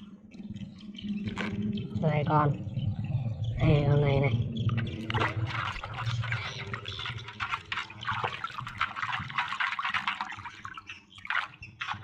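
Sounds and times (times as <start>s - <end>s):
water sloshing in a basin: 4.6s - 12.0s.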